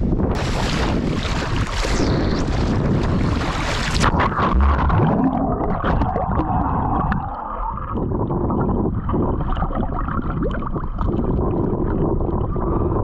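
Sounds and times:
sea water sloshing and gurgling: 0.0 - 13.0.

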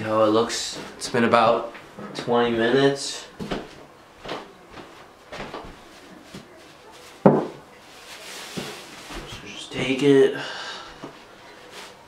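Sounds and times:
footsteps on carpet: 3.4 - 7.2.

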